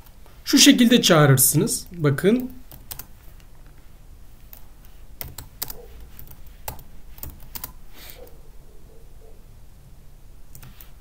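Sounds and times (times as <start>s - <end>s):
computer keyboard typing: 2.4s - 3.5s, 4.5s - 7.8s.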